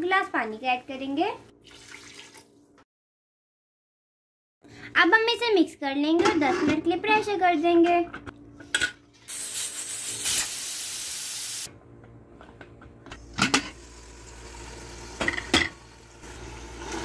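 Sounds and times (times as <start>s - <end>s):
pressure cooker steam hissing: 9.3s - 11.7s.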